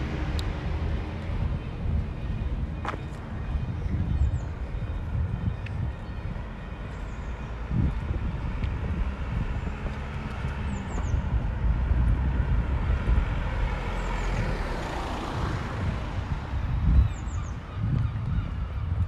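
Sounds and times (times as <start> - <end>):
steady low rumble: 0.0 - 14.6.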